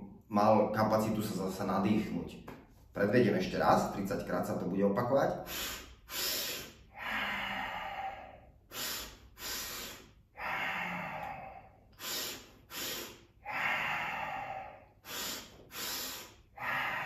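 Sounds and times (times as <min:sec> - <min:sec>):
man exhaling: 0:05.4 - 0:17.0
man sniffing sharply: 0:05.4 - 0:17.0.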